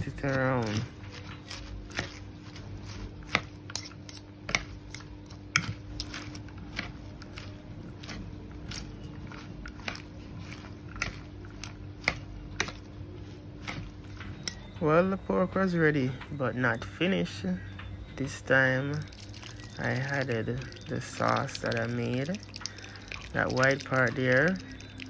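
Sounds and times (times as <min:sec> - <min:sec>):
lettuce crunching and rustling: 0:00.0 - 0:14.8, 0:18.9 - 0:25.0
utensils clicking against bowl: 0:03.3 - 0:06.2.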